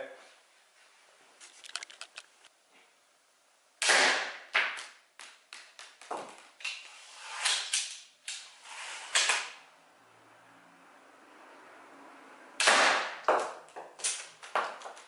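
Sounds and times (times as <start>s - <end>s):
rustling: 0.6s - 2.9s
clicks: 1.4s - 2.5s
slingshot firing crack: 3.8s - 4.9s, 12.6s - 13.3s, 14.0s - 14.4s.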